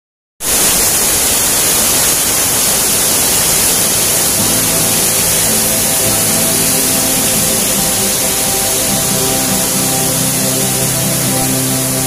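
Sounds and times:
water pouring down rocky cascade: 0.4s - 12.0s
music with held notes: 3.7s - 12.0s.

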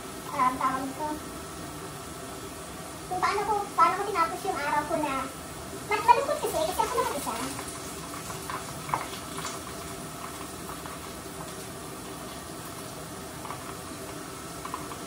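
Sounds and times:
frying oil sizzling: 0.0s - 15.0s
oil popping: 6.4s - 15.0s.

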